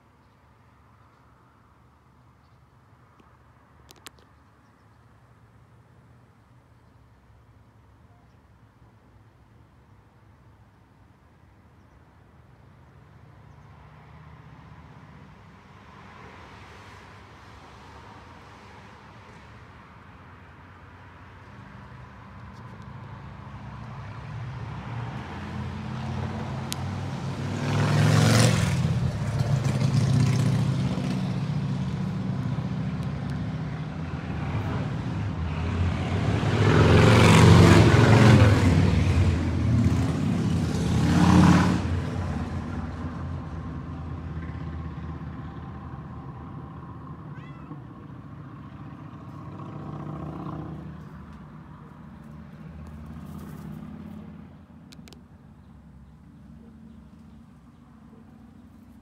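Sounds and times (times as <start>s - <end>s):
vehicle passing by: 21.0s - 54.8s.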